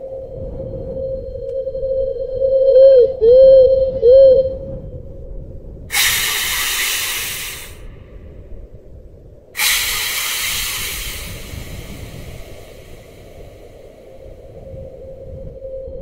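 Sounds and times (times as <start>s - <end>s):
low rumble: 0.0s - 16.0s
loud hissing bursts: 5.9s - 8.2s, 9.6s - 14.4s.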